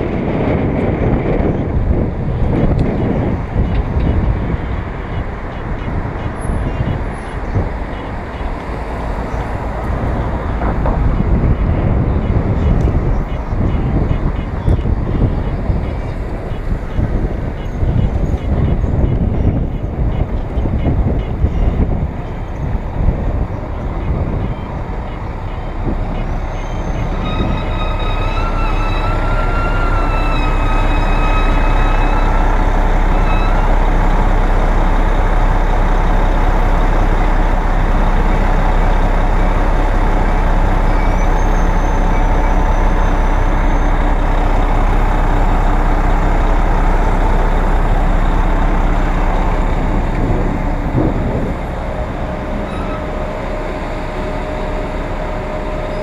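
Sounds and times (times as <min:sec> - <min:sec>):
bus low rumble: 0:00.0 - 0:56.0
city traffic: 0:00.0 - 0:56.0
high squeal: 0:25.3 - 0:34.5, 0:40.5 - 0:45.1, 0:51.8 - 0:56.0
brief high tone: 0:52.5 - 0:53.6.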